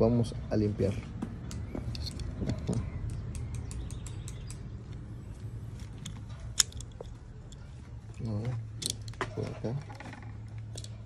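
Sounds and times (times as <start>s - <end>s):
plastic parts clicking and rattling: 5.9s - 7.7s, 8.3s - 11.0s.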